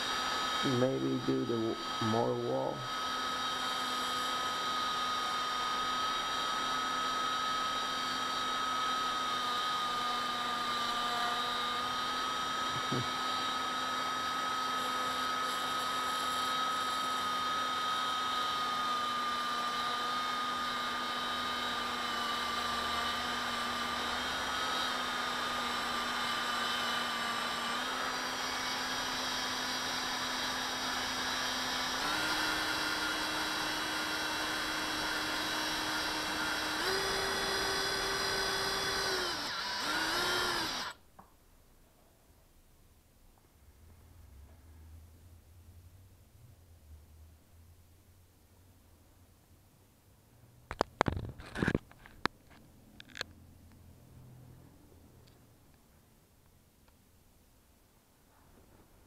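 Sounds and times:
blade shaving spinning metal: 0:00.0 - 0:40.9
electric motor whine: 0:00.0 - 0:41.0.

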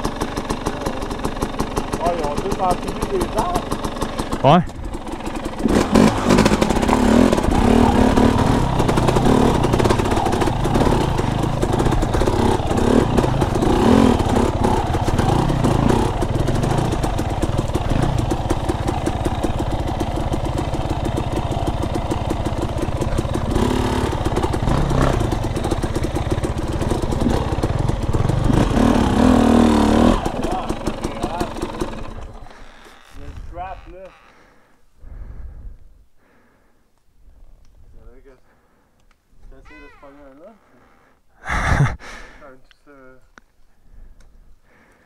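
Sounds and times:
dirt bike engine revving: 0:00.0 - 0:34.3.

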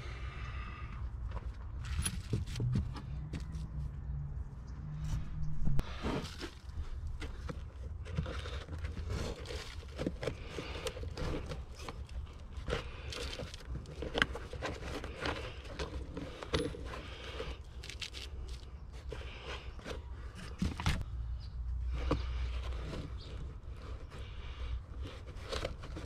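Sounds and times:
low steady hum: 0:00.0 - 0:25.9
metal tools clinking and scraping: 0:01.8 - 0:02.6.

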